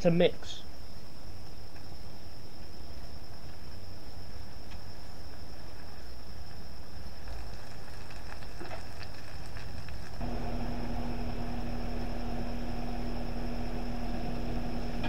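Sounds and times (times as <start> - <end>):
faint high whine: 0.0 - 15.0
outdoor rumble: 7.2 - 15.0
mechanical hum with low drone: 10.1 - 15.0.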